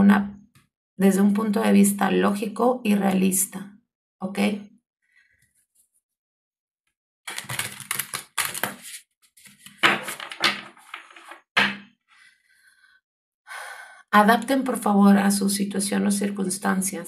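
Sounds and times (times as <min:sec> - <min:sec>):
cards being shuffled: 0:07.3 - 0:11.4
paper rustling: 0:07.3 - 0:11.4.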